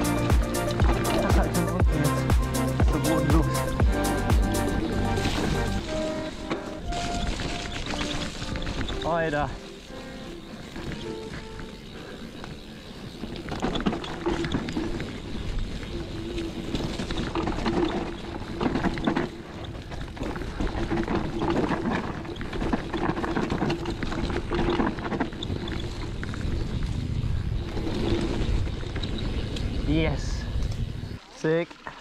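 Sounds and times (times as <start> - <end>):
bike tyres over dirt: 0.0 - 32.0
bike clattering over bumps: 4.9 - 29.8
wind on microphone: 24.1 - 31.2.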